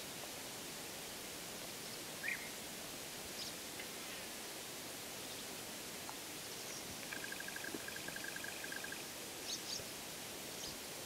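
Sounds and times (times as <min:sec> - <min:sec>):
frog trilling: 0:07.0 - 0:09.1.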